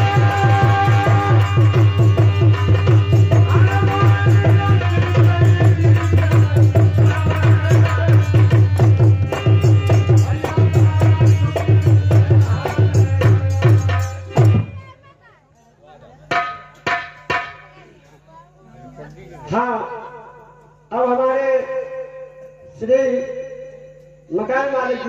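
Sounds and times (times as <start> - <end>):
hand drum beating fast rhythm: 0.0 - 14.7.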